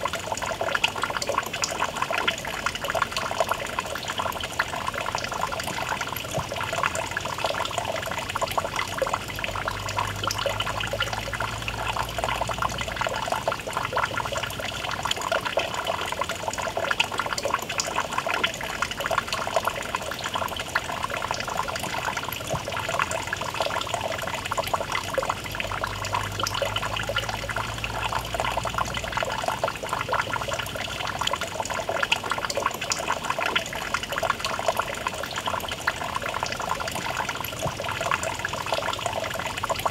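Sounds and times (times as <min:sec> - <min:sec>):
fountain water trickling into pool: 0:00.0 - 0:39.9.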